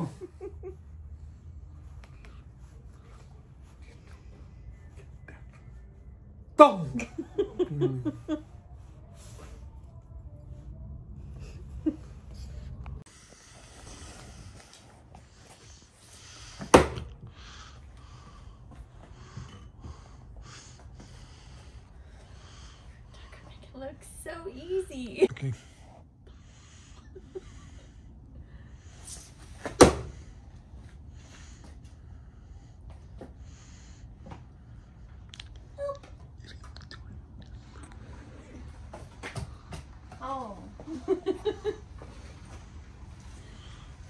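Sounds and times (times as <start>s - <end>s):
low steady hum: 0.0s - 44.0s.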